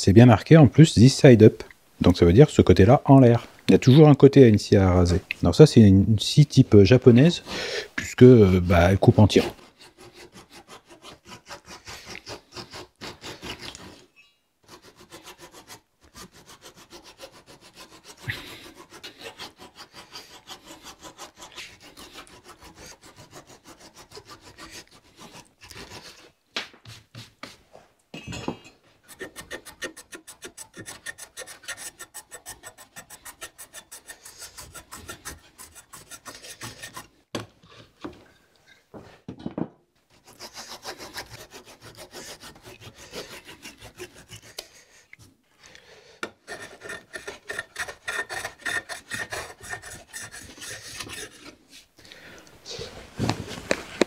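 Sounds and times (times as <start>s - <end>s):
hand saw cutting wood: 9.1s - 26.3s, 29.0s - 37.2s, 40.1s - 45.0s, 46.2s - 51.9s.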